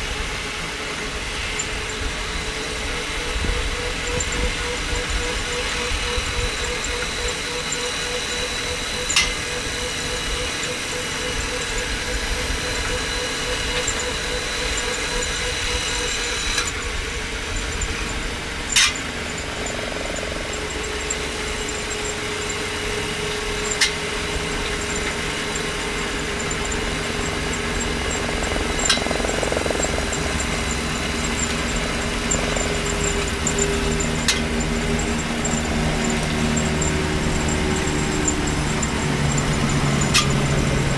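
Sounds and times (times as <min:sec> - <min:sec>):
faint electric motor whine: 0:00.0 - 0:40.9
wheels rumbling on rails: 0:00.0 - 0:40.9
wheels clicking over rail joints: 0:01.0 - 0:40.9.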